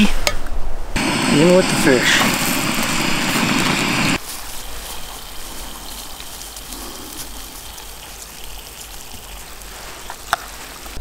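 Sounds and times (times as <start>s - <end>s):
fish frying in hot oil: 3.9s - 11.0s.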